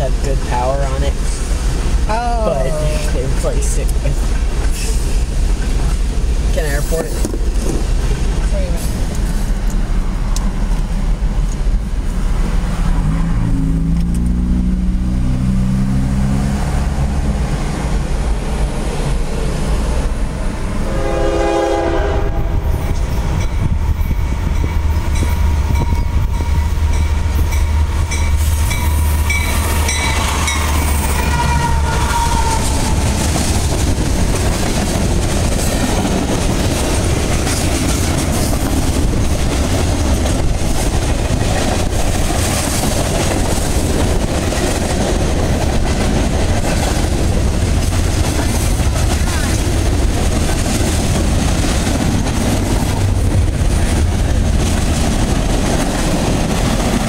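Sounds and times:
diesel locomotive rumbling: 0.0 - 57.0
train wheels clattering on rails: 3.0 - 11.8, 22.4 - 57.0
train horn: 20.8 - 22.8, 29.6 - 33.1.

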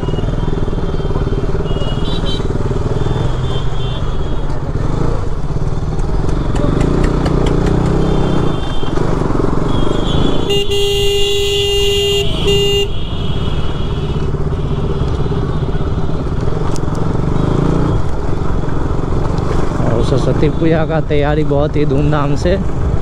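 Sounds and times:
motorcycle engine running: 0.0 - 19.8
street traffic: 0.0 - 23.0
vehicle horn honking: 1.6 - 2.5, 9.7 - 15.9.

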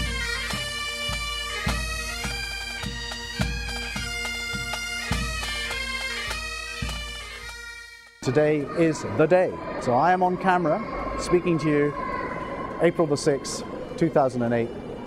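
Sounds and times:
bagpipes playing a tune: 0.0 - 8.8.

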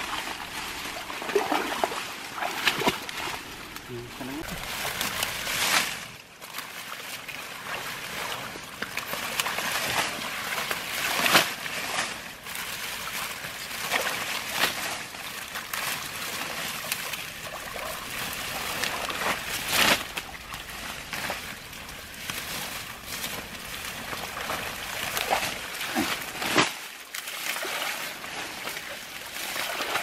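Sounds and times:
water splashing and dripping: 0.0 - 30.0
wet leaves rustling: 0.0 - 30.0.

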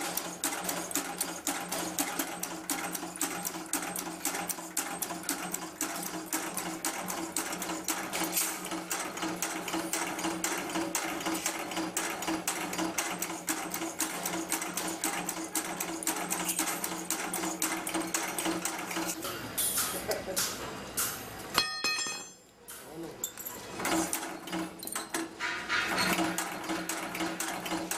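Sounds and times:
machine clattering clicks: 0.0 - 21.2, 23.8 - 27.9.

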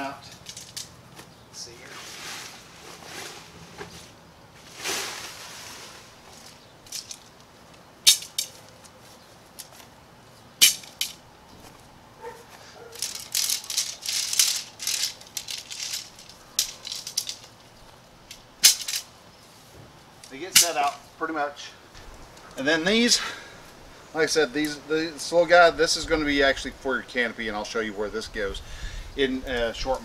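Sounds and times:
tent poles clicking and rattling: 0.0 - 1.4, 4.8 - 19.2, 20.2 - 21.0.

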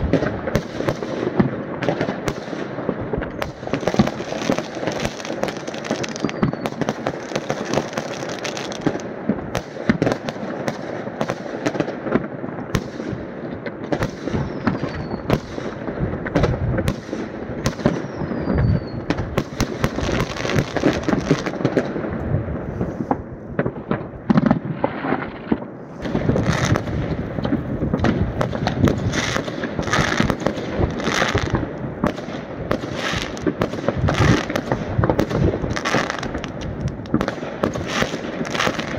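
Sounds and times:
fireworks bangs and crackling: 0.0 - 38.9
falling firework whistles: 5.9 - 7.9, 14.3 - 15.6, 17.7 - 21.0.

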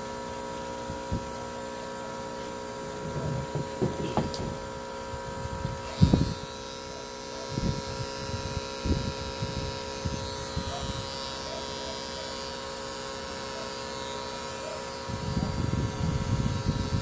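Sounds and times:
tattoo machine humming: 0.0 - 17.0
rustles and thumps: 3.1 - 4.6.

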